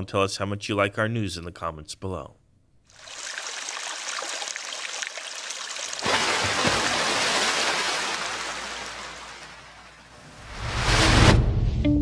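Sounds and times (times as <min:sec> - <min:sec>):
rushing water hiss: 0:03.0 - 0:10.1.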